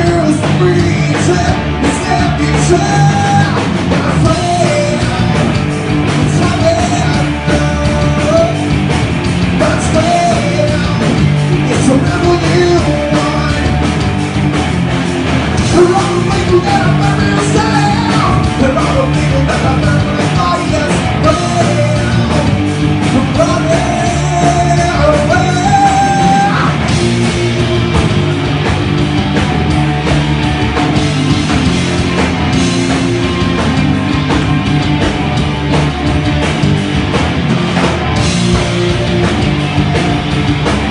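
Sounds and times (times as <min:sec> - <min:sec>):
man singing: 0:00.0 - 0:08.7, 0:09.5 - 0:14.0, 0:15.6 - 0:26.9
rock band playing loudly: 0:00.0 - 0:40.9.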